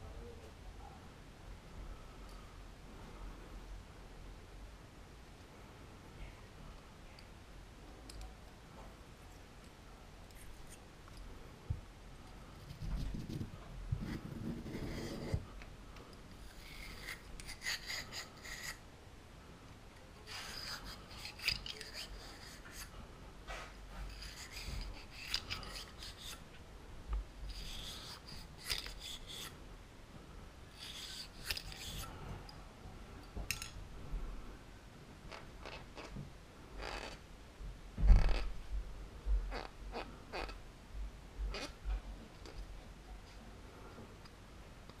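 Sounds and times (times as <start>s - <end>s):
brush scrubbing gun barrel: 16.4s - 18.8s, 20.2s - 22.9s, 24.1s - 26.4s, 27.5s - 29.5s, 30.8s - 32.1s.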